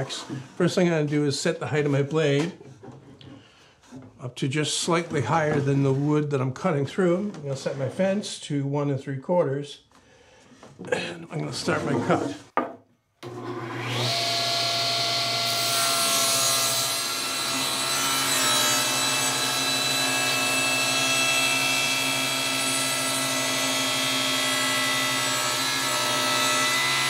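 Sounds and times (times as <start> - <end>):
table saw ripping wood: 13.2 - 27.0.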